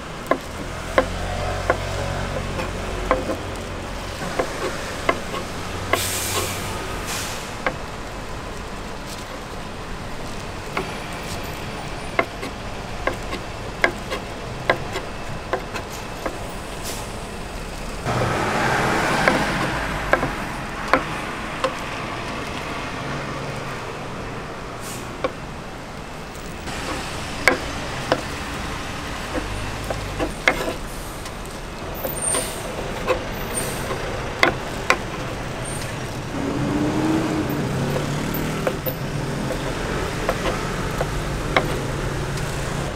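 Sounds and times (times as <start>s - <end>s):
street traffic hum: 0.0s - 42.9s
knife chopping on wooden board: 0.3s - 3.4s, 4.2s - 6.1s, 12.1s - 16.4s, 26.8s - 30.8s, 39.4s - 42.0s
loud rushing noise: 16.5s - 25.8s.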